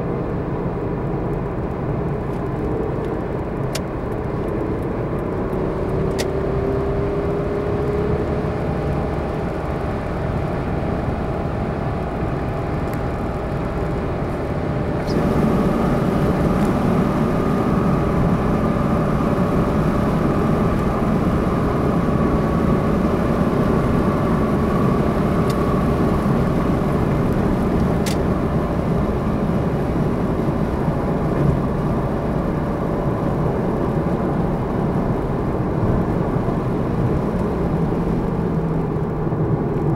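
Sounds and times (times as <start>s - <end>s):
car tyre and engine noise: 0.0s - 39.9s.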